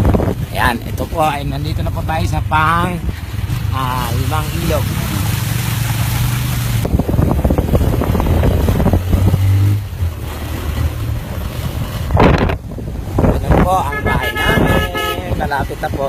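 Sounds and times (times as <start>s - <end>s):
wind noise: 0.0s - 2.2s, 6.3s - 16.0s
water splashing: 0.0s - 16.0s.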